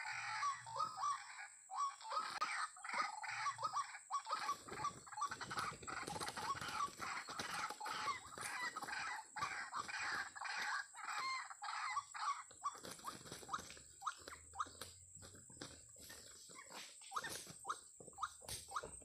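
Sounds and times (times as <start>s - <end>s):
waterhen calling: 0.0s - 15.0s.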